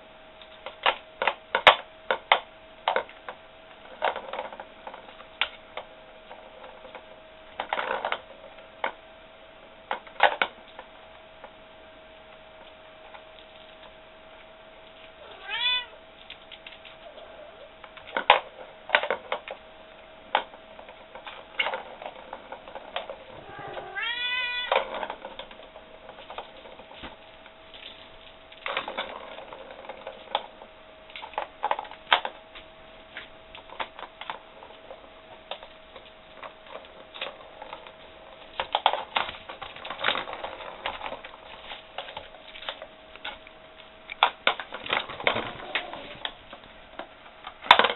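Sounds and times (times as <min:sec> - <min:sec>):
kitten meowing: 0:15.2 - 0:16.0, 0:23.3 - 0:24.8.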